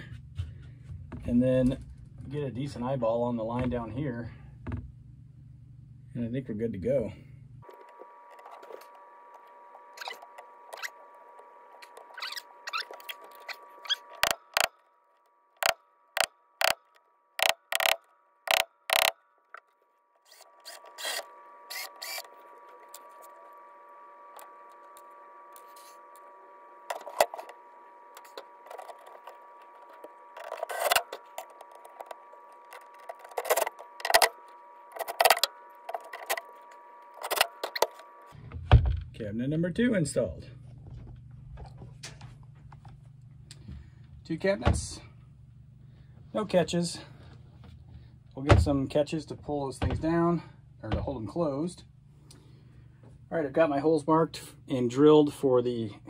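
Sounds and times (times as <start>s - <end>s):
steady hum: 0.0s - 56.0s
sharp clicks and knocks of hardware: 16.6s - 19.1s.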